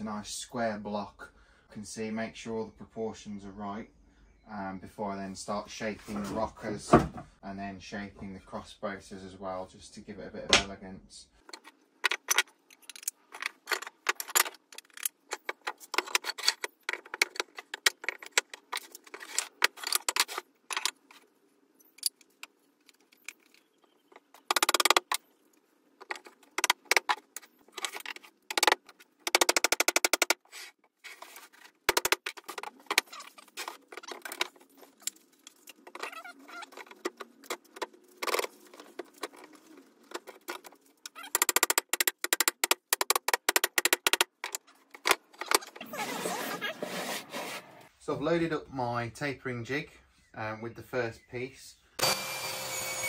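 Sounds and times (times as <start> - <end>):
wooden parts knocking: 22.0 - 25.2, 26.0 - 30.4, 31.9 - 45.7.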